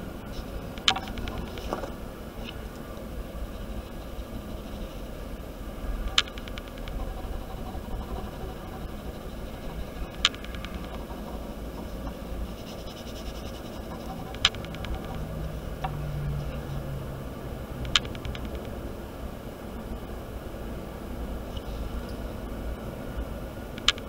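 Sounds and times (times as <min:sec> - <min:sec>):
rapid rattle of ticks: 0:00.0 - 0:19.9, 0:21.4 - 0:24.0
background hum and hiss: 0:00.0 - 0:24.0
sharp clicks: 0:00.7 - 0:01.8, 0:06.1 - 0:12.2, 0:13.3 - 0:16.0, 0:17.8 - 0:18.8, 0:23.7 - 0:24.0.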